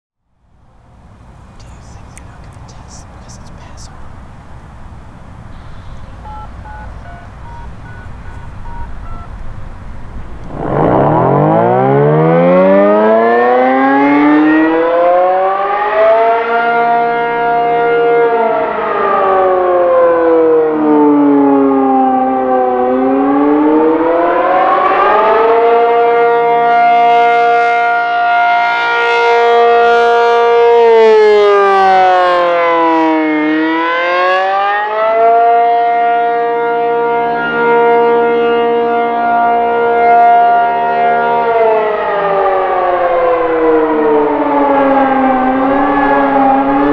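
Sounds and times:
warning siren wailing: 0:05.5 - 0:46.9.

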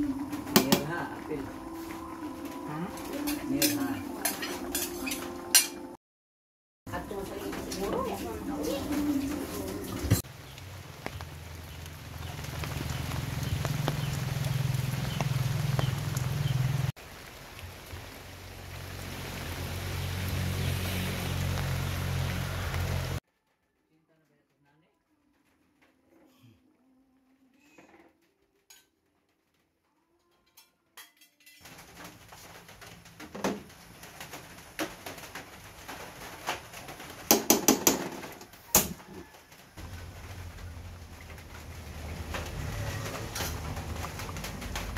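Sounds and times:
rain falling on foliage: 0:06.9 - 0:23.2, 0:31.6 - 0:44.9
stew simmering: 0:07.1 - 0:19.5.

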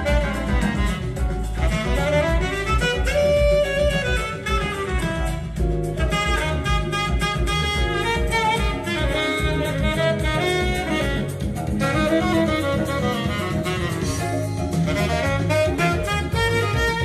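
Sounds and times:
jazz saxophone and drums: 0:00.0 - 0:17.0.

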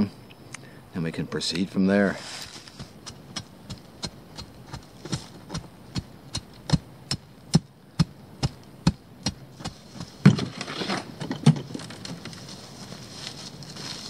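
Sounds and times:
pry bar ramming gravel: 0:02.3 - 0:12.3
shovel digging into gravel: 0:09.6 - 0:11.1.

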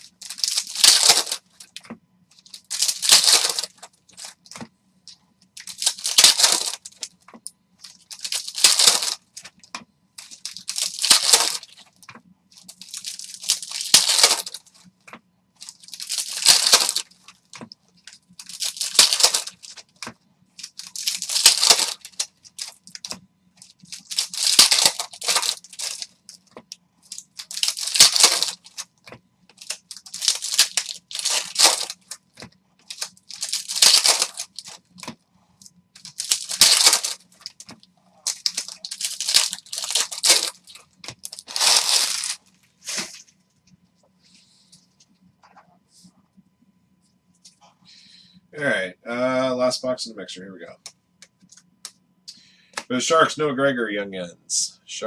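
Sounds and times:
foil wrappers tearing and crinkling: 0:00.0 - 0:01.8, 0:02.4 - 0:04.5, 0:05.6 - 0:07.2, 0:07.8 - 0:09.5, 0:10.2 - 0:12.0, 0:12.6 - 0:14.8, 0:15.6 - 0:35.2, 0:36.0 - 0:43.3.

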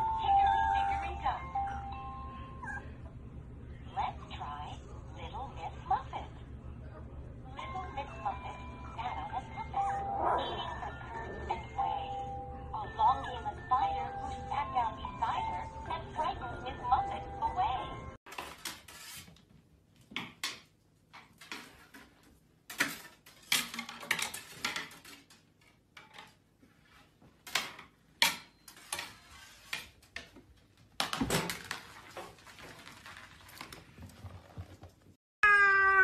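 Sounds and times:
household knocks and clatter: 0:18.3 - 0:26.4, 0:27.3 - 0:35.2
loud wavering cry: 0:35.4 - 0:36.0.

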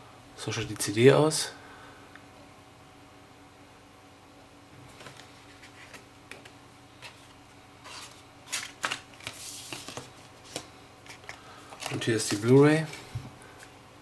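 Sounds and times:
faint steady hum: 0:00.0 - 0:14.0
paper rustling: 0:05.0 - 0:13.7.

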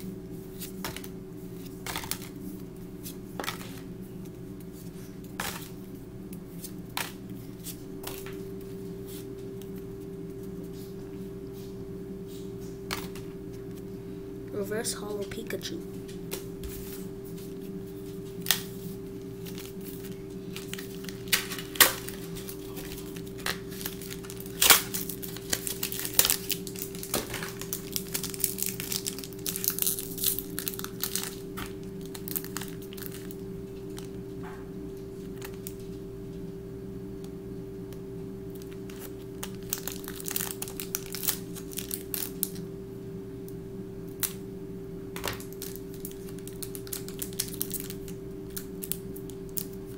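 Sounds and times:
steady low hum: 0:00.0 - 0:49.9
foil wrapper crinkling and tearing: 0:18.1 - 0:34.2, 0:38.5 - 0:42.6, 0:45.2 - 0:49.9.

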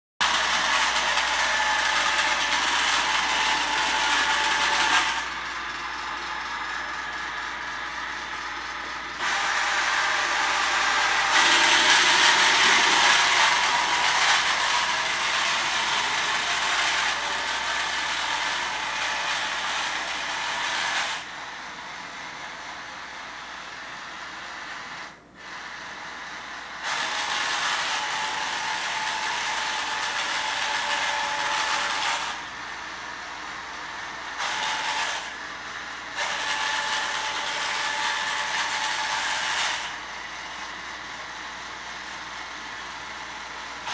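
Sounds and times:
small gear motors whirring: 0:08.4 - 0:21.2.

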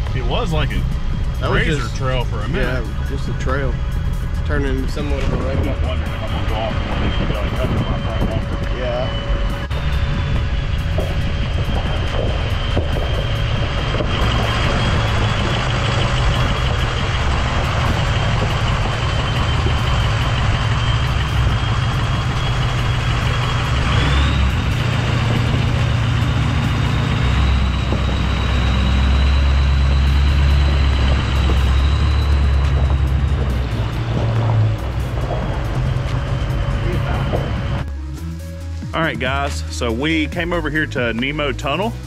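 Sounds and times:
truck engine and road rumble: 0:00.0 - 0:42.0
steady high-pitched tone: 0:00.1 - 0:40.4.

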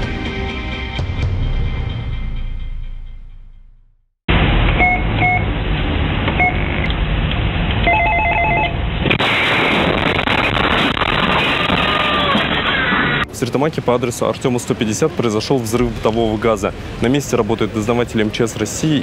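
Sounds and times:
electronic beeps: 0:04.8 - 0:05.5, 0:06.4 - 0:06.8, 0:07.9 - 0:08.8
explosion hissing noise: 0:09.0 - 0:13.4.

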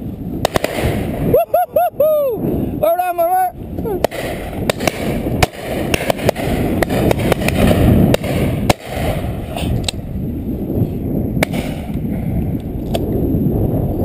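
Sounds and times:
wind on microphone: 0:00.0 - 0:14.0
shotguns firing: 0:00.4 - 0:01.2, 0:04.0 - 0:09.6, 0:11.4 - 0:12.1.

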